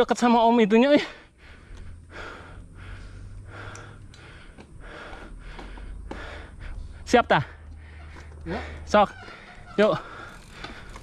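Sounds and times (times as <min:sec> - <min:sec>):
person breathing hard: 0:01.0 - 0:11.0
steady low rumble: 0:01.1 - 0:09.5.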